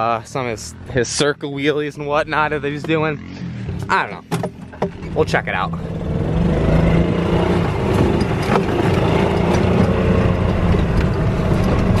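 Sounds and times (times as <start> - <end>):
golf cart engine droning: 0.0 - 12.0.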